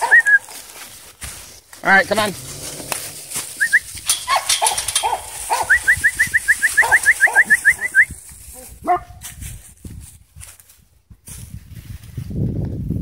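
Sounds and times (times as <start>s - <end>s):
small dog yipping: 0.0s - 0.4s, 6.6s - 7.9s.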